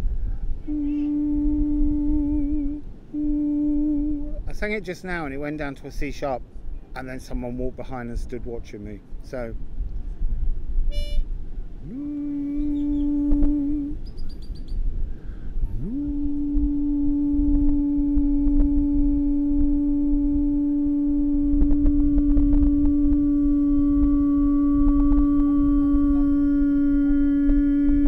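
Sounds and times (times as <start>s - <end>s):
man humming a long note: 0.0s - 4.9s, 11.8s - 14.3s, 15.6s - 28.0s.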